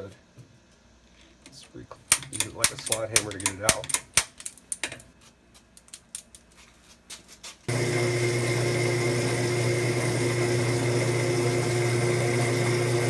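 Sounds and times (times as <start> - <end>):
metal clicks and taps: 1.4 - 5.1, 5.8 - 6.5
electric motor hum: 7.7 - 13.0.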